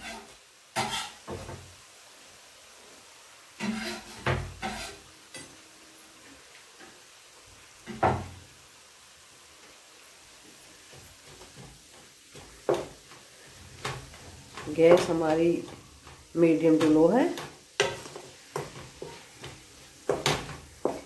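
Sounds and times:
vegetables sauteing faintly: 0.0 - 21.0
stirring with wooden spatula: 3.6 - 5.1, 10.4 - 21.0.

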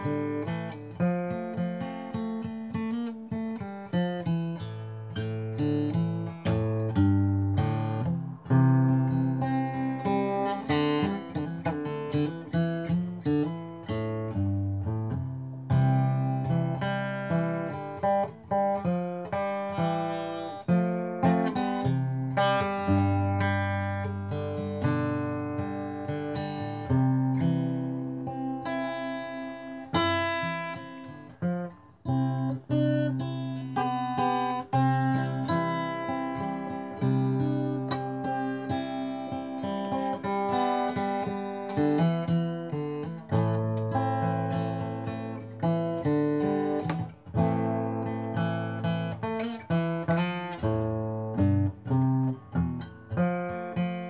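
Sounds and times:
acoustic guitar strumming chords: 0.0 - 54.0.

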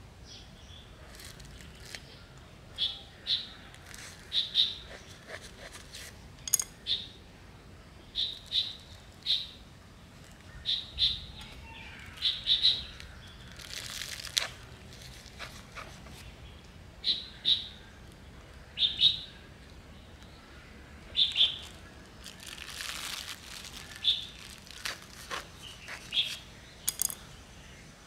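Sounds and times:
small bird chirping: 0.3 - 7.2, 8.0 - 9.6, 10.3 - 14.4, 21.1 - 27.9
handling rustle: 1.0 - 2.4, 13.5 - 16.3, 21.6 - 27.2.

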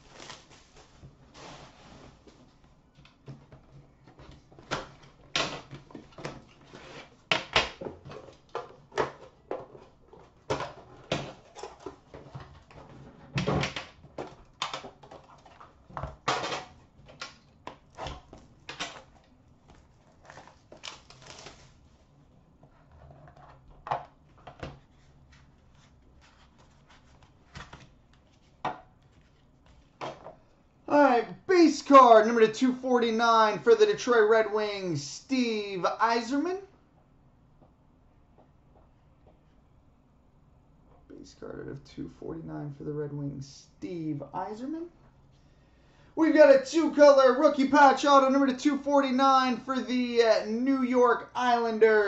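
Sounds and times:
cardboard sliding scrape: 0.2 - 2.3.

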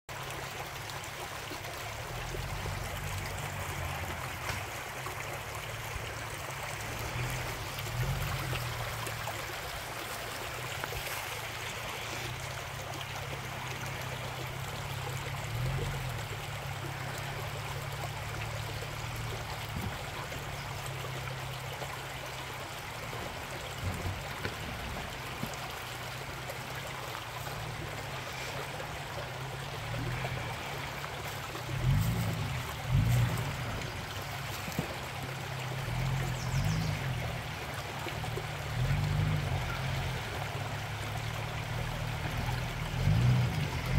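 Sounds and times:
creek running over rocks: 0.1 - 43.9
off-road vehicle engine: 0.1 - 43.9.

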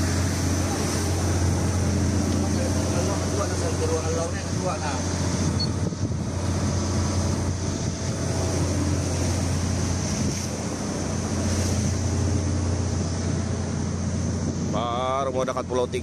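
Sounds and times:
boat engine droning: 0.0 - 16.0
sea rushing along hull: 0.0 - 16.0
wind buffeting microphone: 0.0 - 16.0.

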